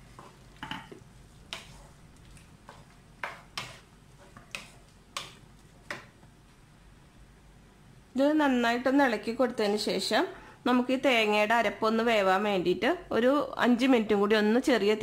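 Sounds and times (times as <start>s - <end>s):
spatula scraping in pan: 0.0s - 6.1s.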